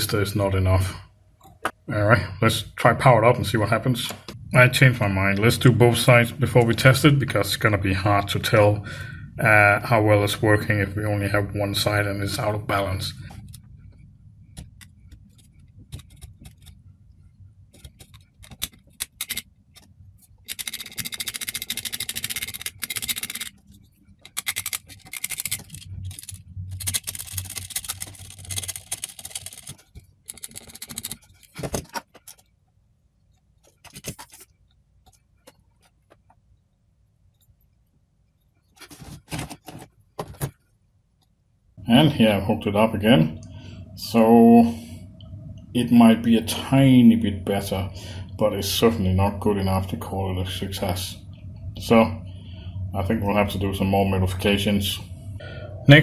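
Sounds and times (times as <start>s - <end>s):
hand tools scraping circuit board: 14.6s - 16.8s, 17.7s - 32.5s.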